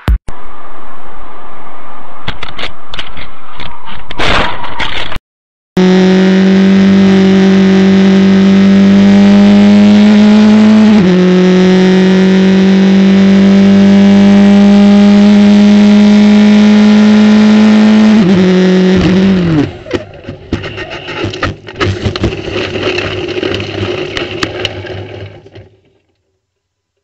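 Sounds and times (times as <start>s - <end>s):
race car engine at full throttle: 5.8s - 20.9s.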